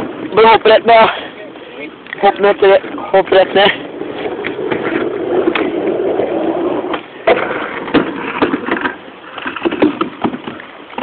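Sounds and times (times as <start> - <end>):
skateboard wheels rolling on ramp: 0.0 - 11.0
skateboard clacking on ramp: 6.8 - 11.0.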